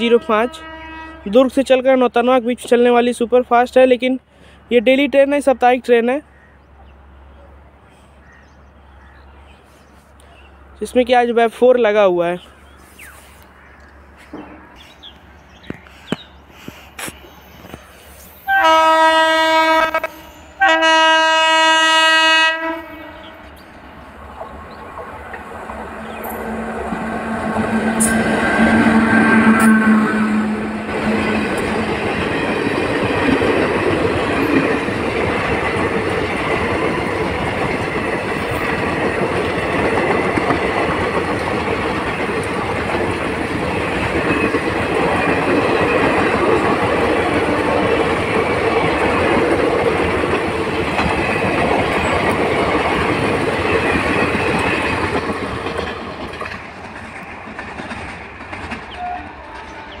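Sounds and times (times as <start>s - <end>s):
train wheels rushing on rails: 13.0s - 60.0s.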